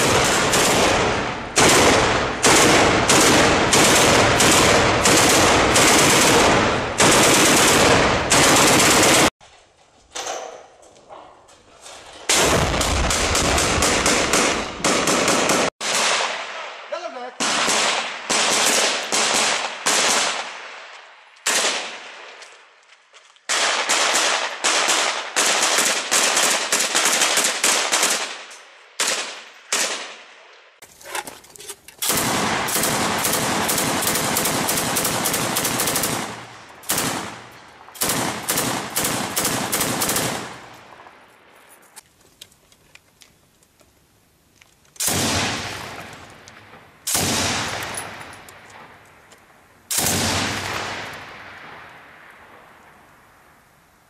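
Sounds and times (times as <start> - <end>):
machine gun fire: 0.0 - 9.3, 12.3 - 16.5, 32.0 - 40.7
rifle shots: 0.0 - 9.3, 12.3 - 22.4, 23.5 - 30.4, 32.0 - 41.2, 45.0 - 48.9, 49.9 - 51.9.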